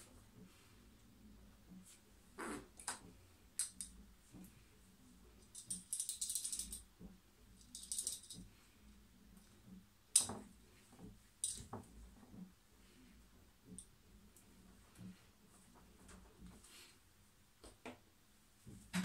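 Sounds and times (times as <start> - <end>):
plastic rattle toy shaken: 5.5 - 6.8, 7.6 - 8.4.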